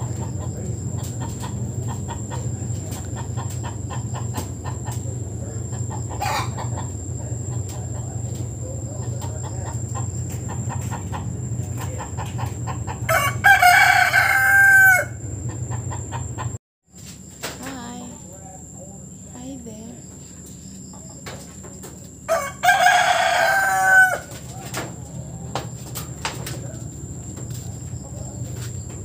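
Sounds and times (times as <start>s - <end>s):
rooster crowing: 5.6s - 8.1s, 12.4s - 16.5s, 22.2s - 24.8s.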